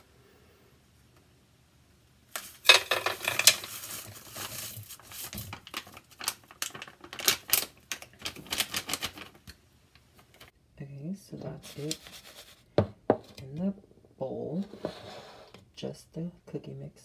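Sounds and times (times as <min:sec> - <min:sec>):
dry mix rustling into bowl: 0:02.3 - 0:09.5, 0:11.4 - 0:13.4
packaging crinkling and tearing: 0:02.3 - 0:09.6.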